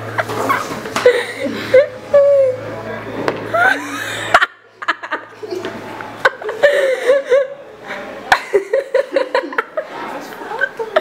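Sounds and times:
laughter: 3.5s - 7.6s, 8.3s - 11.0s.

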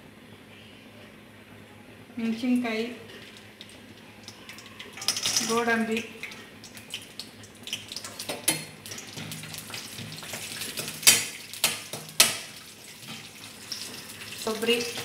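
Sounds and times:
food sizzling in oil: 3.1s - 15.0s.

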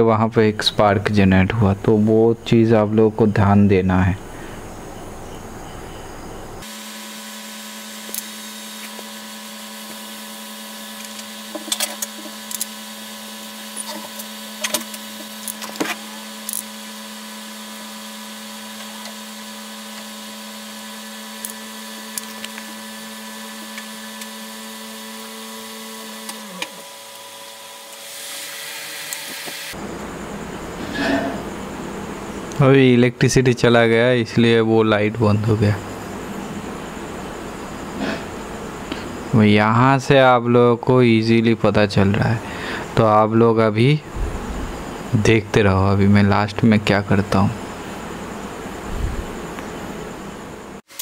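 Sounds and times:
electrical hum: 0.0s - 51.0s
nail clipper snipping plastic: 11.0s - 12.7s.

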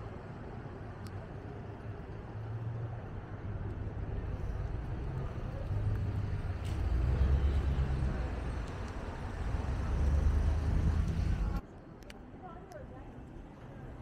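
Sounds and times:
car engines passing: 1.5s - 11.6s.

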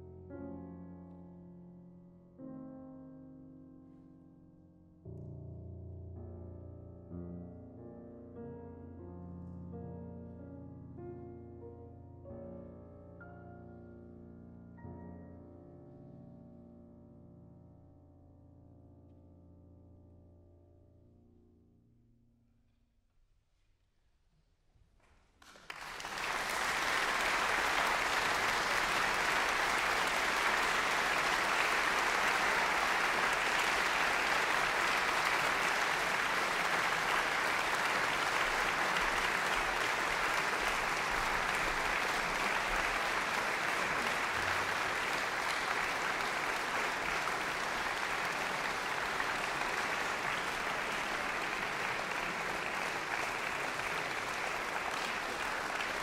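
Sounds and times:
audience clapping: 25.4s - 56.0s.

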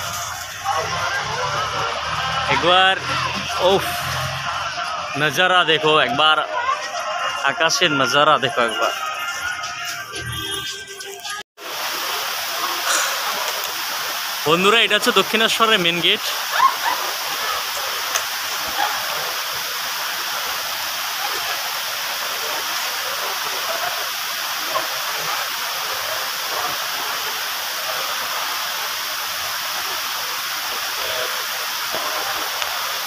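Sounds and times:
crowd murmur: 0.0s - 11.4s, 12.6s - 13.7s.

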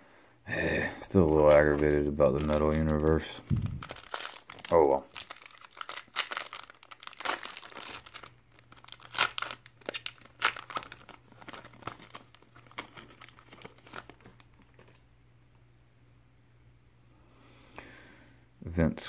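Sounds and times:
foil wrapper crinkling and tearing: 1.0s - 15.0s.

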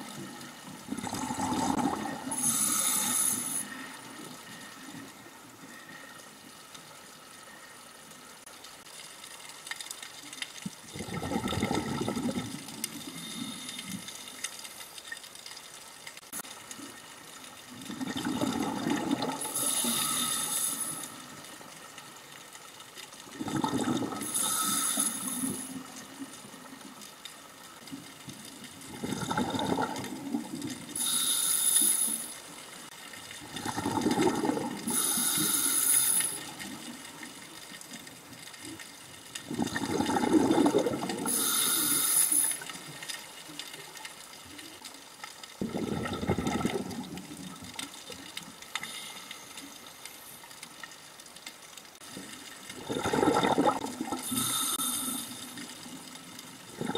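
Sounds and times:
exhaled bubbles rumbling: 0.0s - 2.6s, 10.7s - 13.0s, 17.7s - 19.6s, 23.3s - 24.5s, 28.6s - 31.0s, 33.4s - 35.1s, 39.4s - 41.6s, 45.6s - 47.9s, 52.0s - 54.3s, 55.8s - 56.9s
regulator valve hissing: 34.9s - 36.5s, 41.3s - 42.6s.

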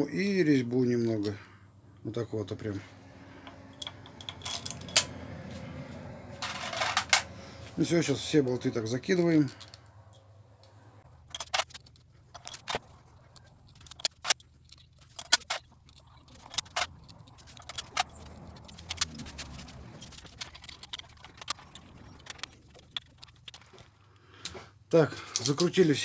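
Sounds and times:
metal bolts clinking: 3.4s - 5.2s, 6.4s - 10.3s, 11.2s - 23.9s.

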